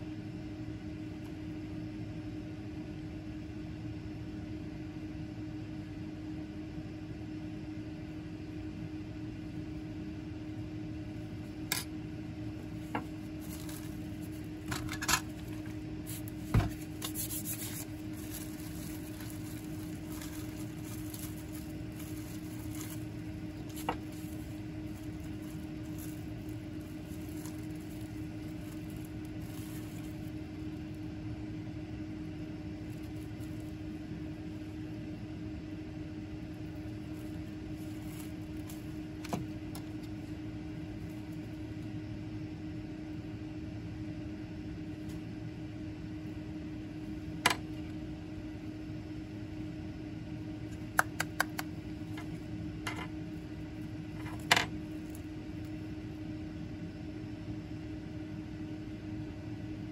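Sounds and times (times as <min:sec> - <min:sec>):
machine hum: 0:00.0 - 0:59.9.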